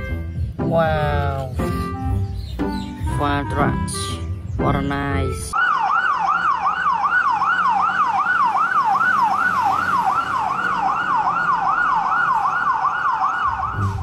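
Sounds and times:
fire engine siren yelping: 0:05.6 - 0:14.0.

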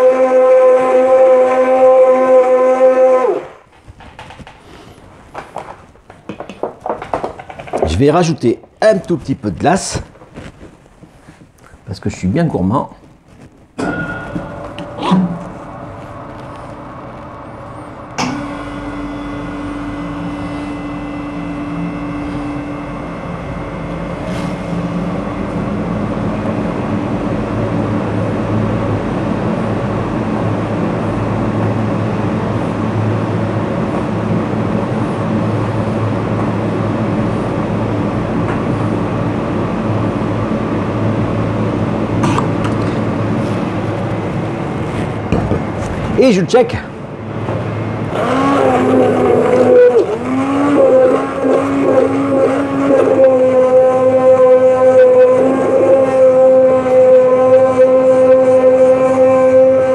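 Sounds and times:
motor humming: 0:41.7 - 0:59.9.

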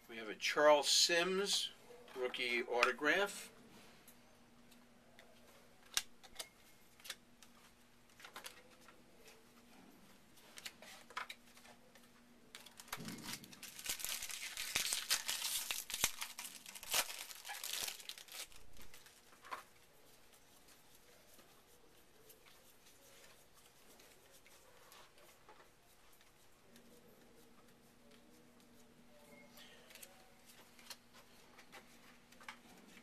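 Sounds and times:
wrapper tearing and crinkling: 0:12.6 - 0:19.3.

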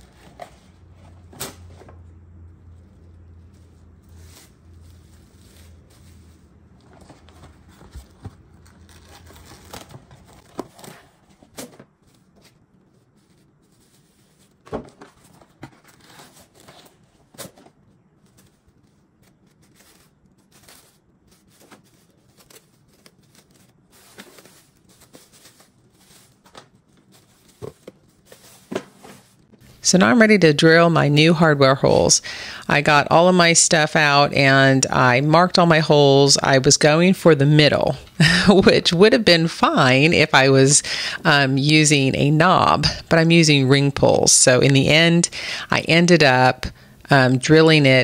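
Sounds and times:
plastic wrap crinkling: 0:02.6 - 0:29.7
cling wrap pulled and torn: 0:02.7 - 0:11.1, 0:18.2 - 0:28.2.

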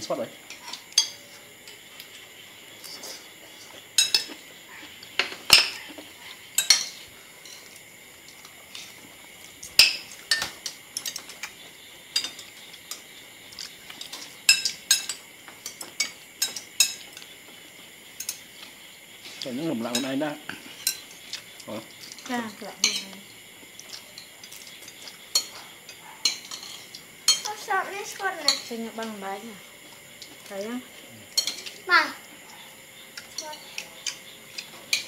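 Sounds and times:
cutlery clinking on plates: 0:00.5 - 0:01.8, 0:03.9 - 0:04.4, 0:05.0 - 0:05.9, 0:06.6 - 0:09.0, 0:09.6 - 0:17.3, 0:18.2 - 0:23.1, 0:23.8 - 0:27.5, 0:31.3 - 0:31.8, 0:33.2 - 0:35.0.

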